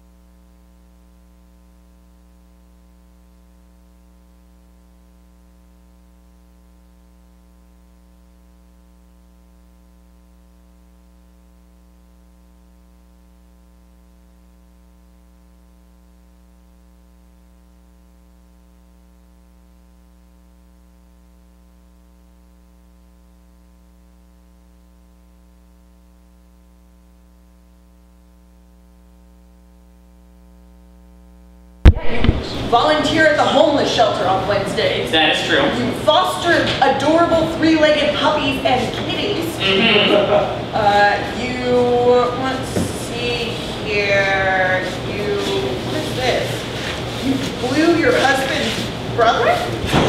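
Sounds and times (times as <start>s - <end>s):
steady electrical hum: 0.0s - 50.0s
loud click: 31.8s - 32.7s.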